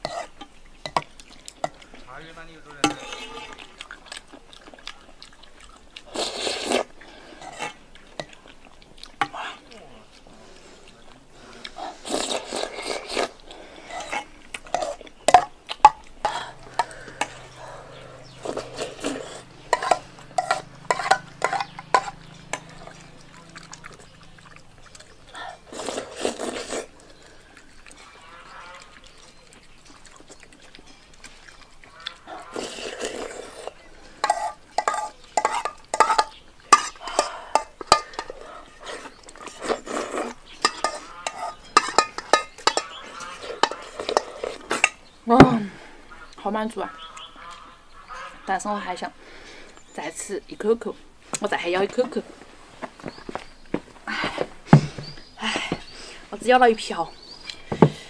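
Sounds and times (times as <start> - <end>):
chewing noises: 0.0 - 58.0
person slurping: 2.8 - 46.0
spoon clicking against bowl: 40.7 - 43.0.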